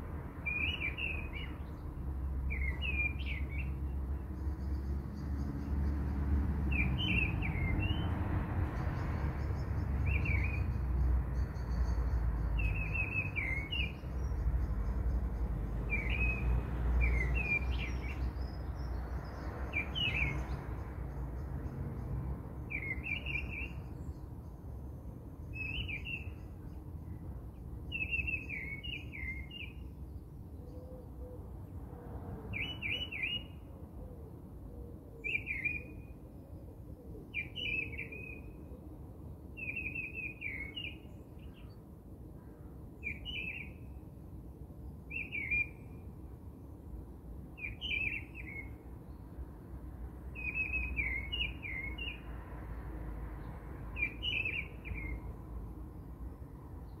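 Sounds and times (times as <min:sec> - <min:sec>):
bird chirping: 0:00.4 - 0:24.6, 0:25.4 - 0:30.9, 0:32.5 - 0:33.6, 0:35.2 - 0:36.1, 0:37.3 - 0:38.6, 0:39.6 - 0:41.8, 0:43.0 - 0:44.0, 0:45.1 - 0:46.0, 0:47.6 - 0:49.3, 0:50.3 - 0:52.3, 0:53.4 - 0:55.4.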